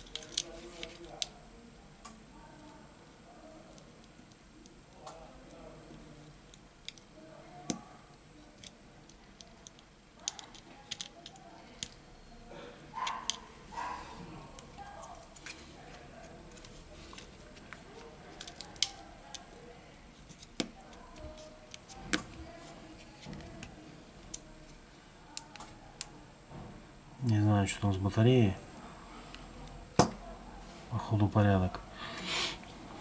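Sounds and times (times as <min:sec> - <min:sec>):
clicks and taps of small parts: 0:08.6 - 0:12.0.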